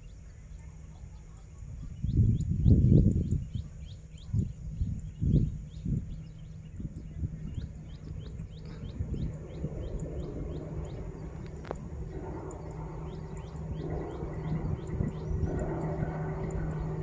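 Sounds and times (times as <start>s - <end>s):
bird chirping: 0.0s - 17.0s
low uneven rumble: 0.3s - 17.0s
broad rushing noise: 8.5s - 17.0s.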